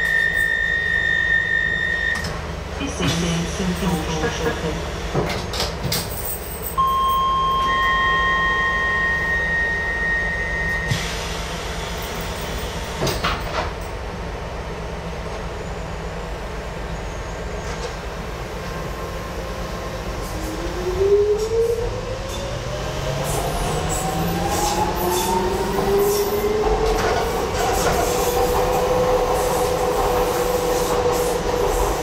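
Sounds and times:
train equipment humming: 0:00.0 - 0:32.0
electronic door-warning tones: 0:06.8 - 0:11.0.

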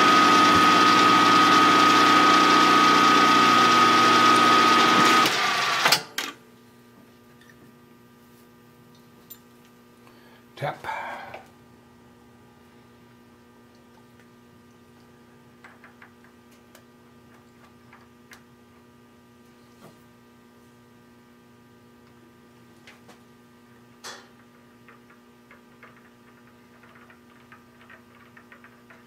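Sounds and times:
electrical hum: 0:06.4 - 0:29.0.

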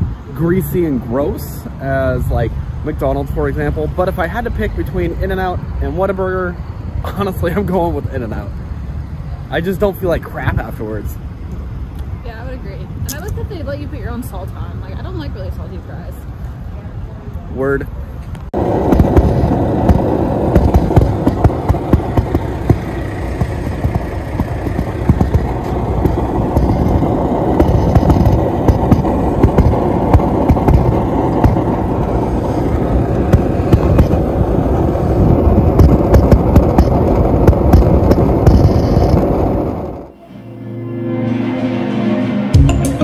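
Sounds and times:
flame popping and crackling: 0:13.1 - 0:13.6, 0:18.4 - 0:40.1
gas burner flame rushing: 0:18.5 - 0:40.1.

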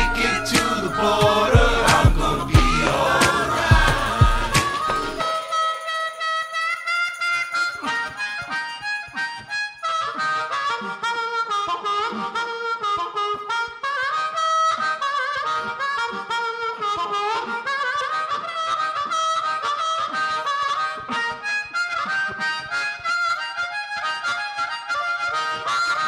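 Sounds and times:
backing track music: 0:00.0 - 0:26.0
harmonica solo: 0:00.0 - 0:26.0.

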